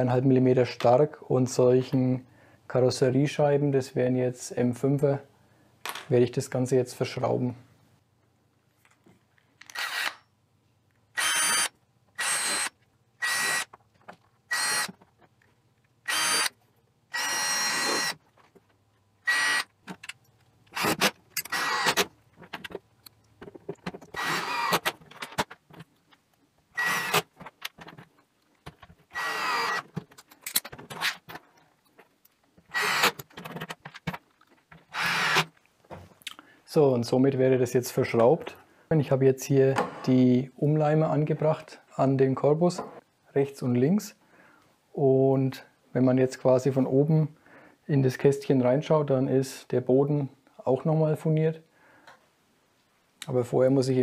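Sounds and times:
cordless drill whining: 9.7 - 10.2, 11.2 - 13.7, 14.5 - 14.9, 16.1 - 18.2, 19.2 - 19.7, 20.8 - 22.0, 24.2 - 24.9, 26.8 - 27.3, 29.1 - 29.8, 32.7 - 33.2, 34.9 - 35.5.

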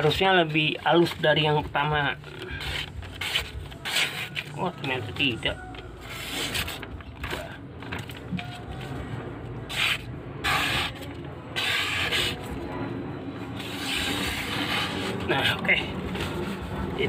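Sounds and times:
paper rustling: 0.0 - 10.0
blade slicing paper: 2.3 - 5.0, 6.0 - 6.9, 9.7 - 12.6, 13.6 - 16.6.

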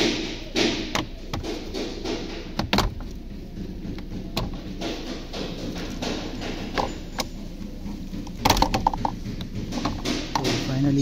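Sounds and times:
handling noise: 0.0 - 11.0
plastic clicks and knocks: 0.9 - 3.2, 7.9 - 10.7.

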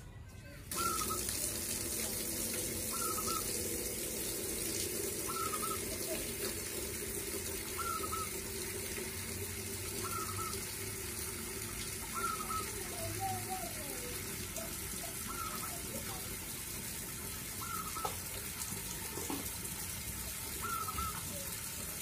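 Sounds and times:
dove calling: 0.7 - 1.5, 2.8 - 3.8, 5.1 - 6.6, 7.5 - 8.6, 9.8 - 11.0, 11.9 - 16.4, 17.5 - 18.4, 20.5 - 21.8.

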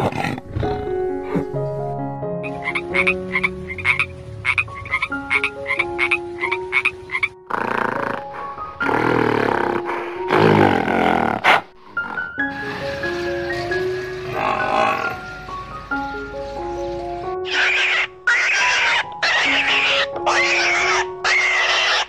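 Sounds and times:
toad croaking: 2.4 - 9.8, 17.4 - 22.0
rough animal call: 2.4 - 16.7, 17.4 - 22.0.

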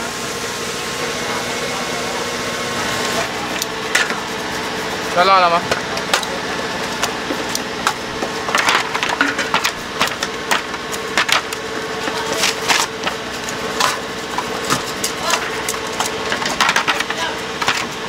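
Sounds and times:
steady hum: 0.0 - 18.0
fried snacks clattering in metal chute: 8.4 - 18.0.

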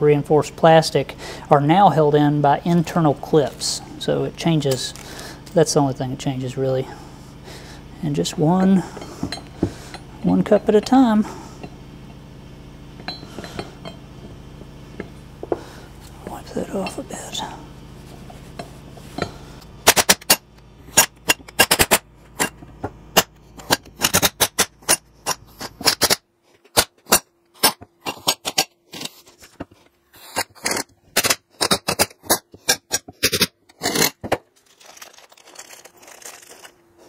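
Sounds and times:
handling noise: 34.0 - 37.0.

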